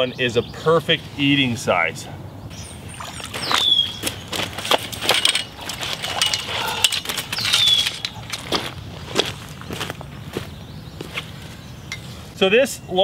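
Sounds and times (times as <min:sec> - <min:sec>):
boots splashing in water and mud: 0:02.8 - 0:06.3
bird falling whistle: 0:03.1 - 0:04.2.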